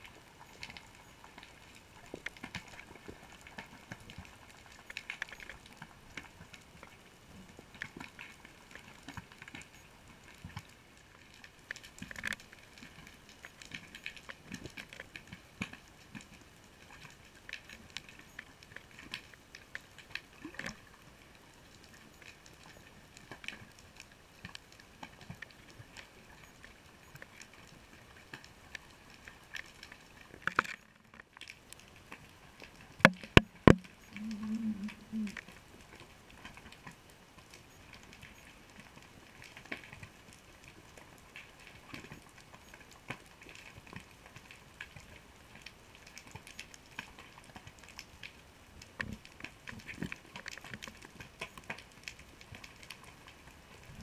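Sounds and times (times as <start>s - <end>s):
underwater reef crackle: 0.0s - 54.0s
brief low hum: 33.7s - 35.4s.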